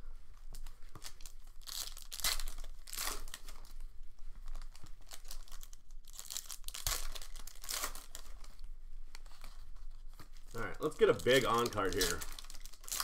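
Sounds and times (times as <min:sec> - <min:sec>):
foil wrappers tearing and crinkling: 0:00.5 - 0:03.8, 0:04.5 - 0:08.6, 0:10.4 - 0:13.0.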